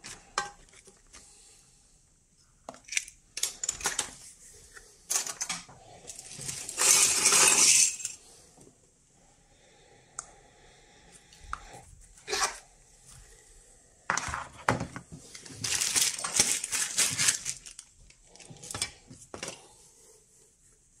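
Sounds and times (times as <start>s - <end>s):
plastic bag crinkling: 15.3s - 18.8s.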